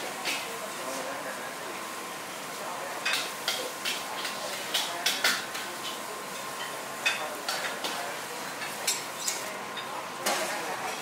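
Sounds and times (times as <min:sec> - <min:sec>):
frying hiss: 0:00.0 - 0:11.0.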